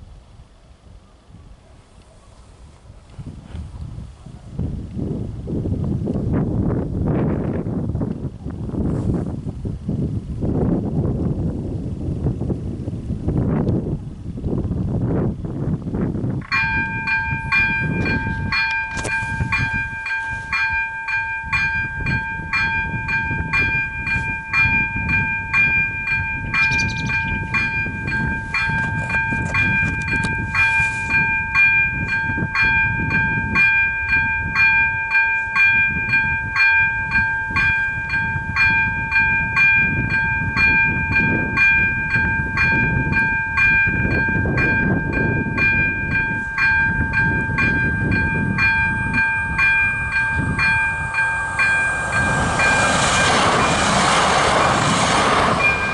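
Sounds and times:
level crossing bell ringing: 16.5 - 52.9.

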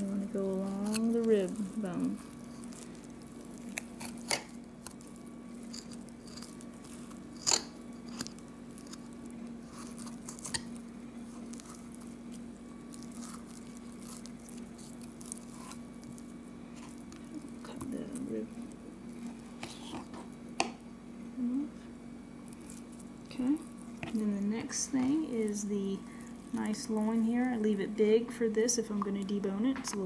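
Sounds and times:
wet squishing and crunching: 0.0 - 20.8, 22.3 - 30.0
steady low hum: 0.0 - 30.0
knife cutting meat and bone: 0.6 - 1.4.

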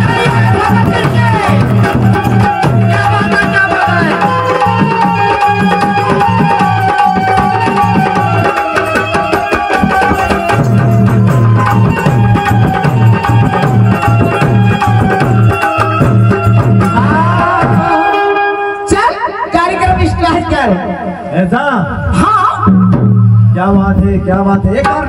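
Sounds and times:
hand drum rhythm: 0.0 - 18.2
held melody line: 0.0 - 24.3.

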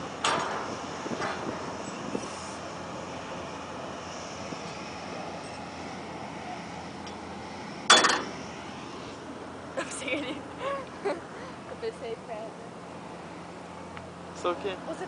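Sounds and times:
boat engine drone: 0.0 - 15.0
wind noise: 0.2 - 2.6.

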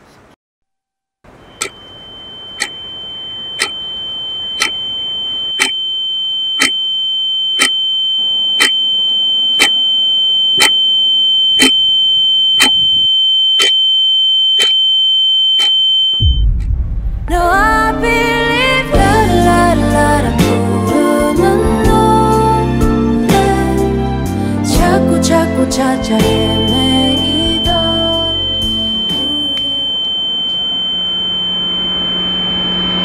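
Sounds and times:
high-pitched ringing tone: 1.3 - 16.6, 25.5 - 33.0
clock ticking: 4.6 - 4.8, 5.6 - 5.8
pop song: 17.3 - 30.2.

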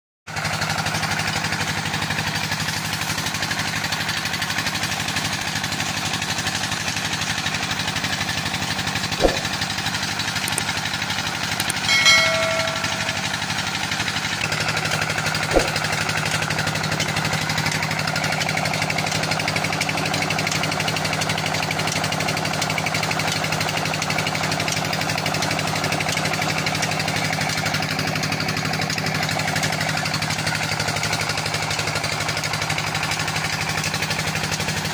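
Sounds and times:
diesel engine knocking: 0.3 - 34.9
high-pitched tone: 11.9 - 13.7.

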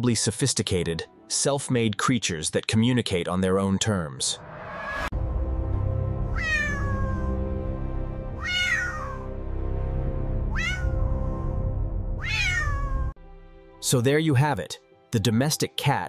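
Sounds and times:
background music: 0.0 - 3.0, 4.4 - 16.0
cat meowing: 6.3 - 7.5, 8.4 - 9.3, 10.5 - 11.6, 12.2 - 13.2.

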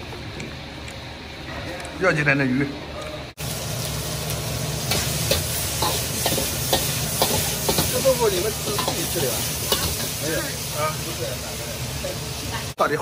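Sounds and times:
food sizzling in a wok: 3.4 - 13.0.

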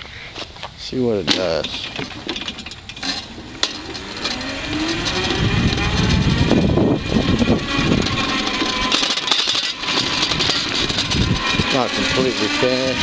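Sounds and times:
wind and tyre noise: 0.0 - 13.0
electric motor whining: 2.8 - 13.0.

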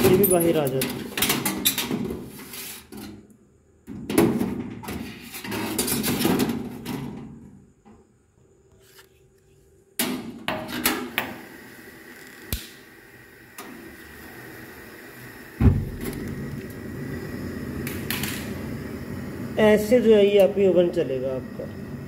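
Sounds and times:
metal oven trays clattering: 0.0 - 2.3, 4.0 - 7.4.

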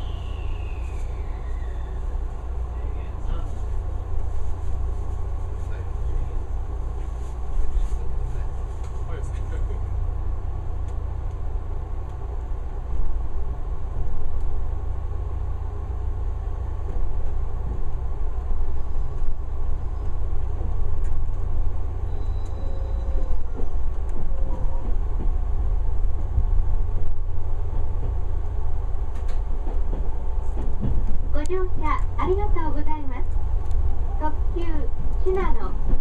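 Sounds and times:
faint wheel squeals: 0.0 - 2.2, 18.7 - 20.3, 22.0 - 24.8
train rumbling: 0.0 - 36.0.

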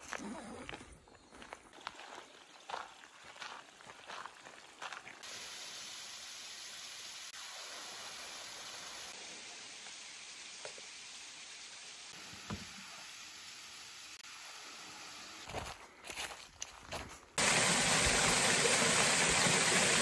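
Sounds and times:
water running over rock: 17.4 - 20.0.

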